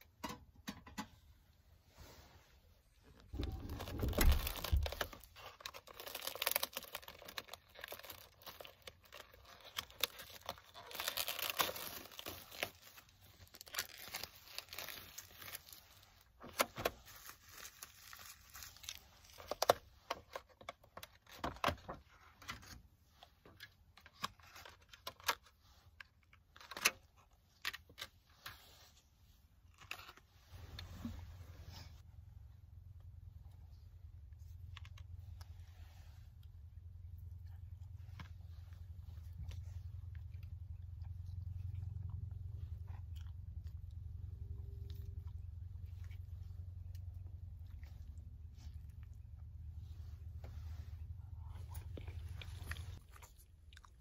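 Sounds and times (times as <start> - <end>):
plastic packaging crinkling: 3.2 - 21.8
plastic tearing: 3.3 - 21.9.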